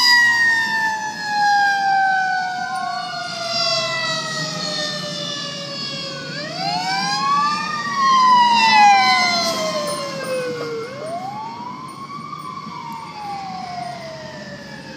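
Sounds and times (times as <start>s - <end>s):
fire truck sirens wailing: 0.0s - 14.9s.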